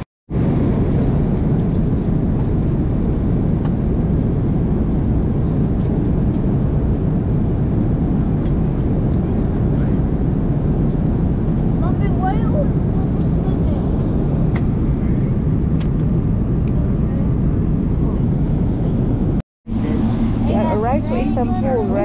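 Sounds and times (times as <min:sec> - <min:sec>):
airliner cabin engine drone: 0:00.3 - 0:22.0.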